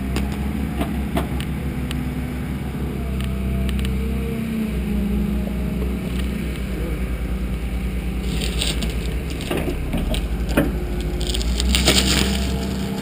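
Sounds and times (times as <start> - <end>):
diesel engine droning: 0.0 - 13.0
wooden boards cracking and splintering: 8.2 - 13.0.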